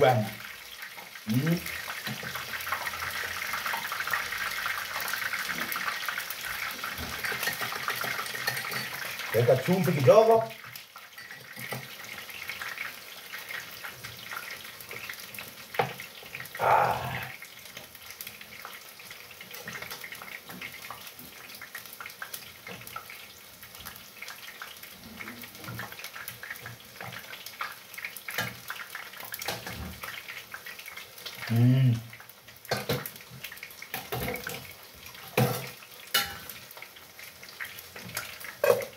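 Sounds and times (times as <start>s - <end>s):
meat simmering in a pan: 0.0s - 38.9s
utensils clicking over pan: 7.1s - 9.2s, 33.9s - 36.6s.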